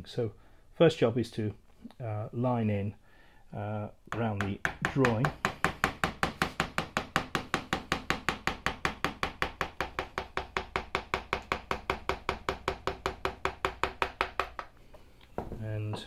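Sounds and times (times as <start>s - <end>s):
mallet tapping carving gouge: 4.1s - 14.7s.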